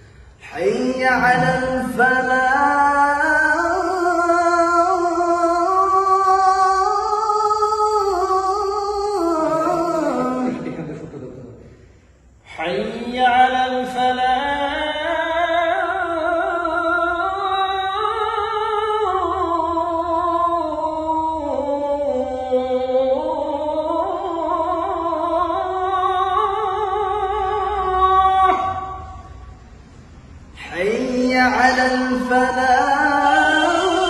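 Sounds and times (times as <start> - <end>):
man singing unaccompanied: 0.4 - 11.1, 12.5 - 29.2, 30.6 - 34.0.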